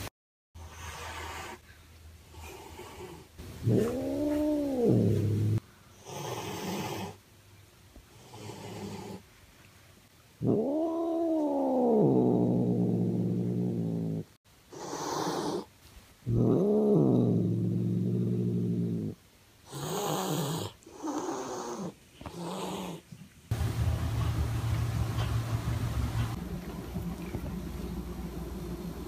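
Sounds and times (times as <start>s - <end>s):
cat hissing: 2.3s - 7.2s, 14.7s - 15.7s, 19.0s - 23.0s
cat yowling and growling: 3.6s - 5.6s, 10.4s - 13.4s.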